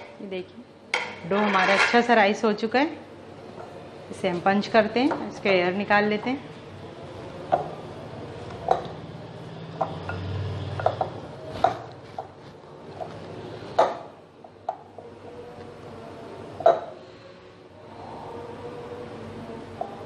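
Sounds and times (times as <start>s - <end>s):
glass bowl knocks: 16.6s - 16.9s.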